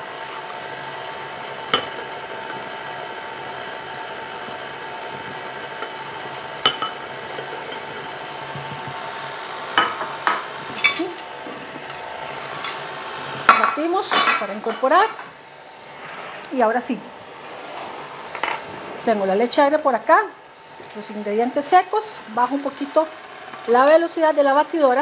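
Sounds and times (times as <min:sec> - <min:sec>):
stand mixer motor whine: 0:00.0 - 0:13.5, 0:15.0 - 0:16.5, 0:17.1 - 0:19.0, 0:20.4 - 0:25.0
beater knocking and clinking bowl: 0:01.7 - 0:02.1, 0:06.6 - 0:08.0.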